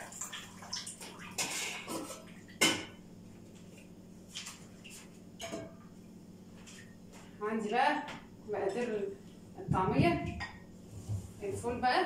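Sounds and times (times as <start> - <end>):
metal pots and utensils clinking: 5.4 - 5.8.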